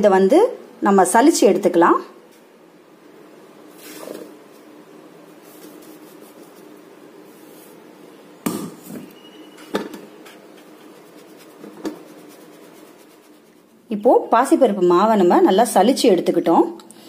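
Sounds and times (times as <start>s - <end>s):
flour rustling in a sieve: 3.7s - 7.9s, 10.1s - 13.9s.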